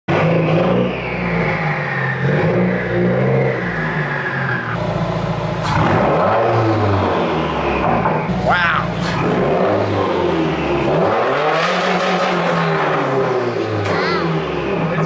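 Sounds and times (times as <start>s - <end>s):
car engine running: 4.7s - 15.0s.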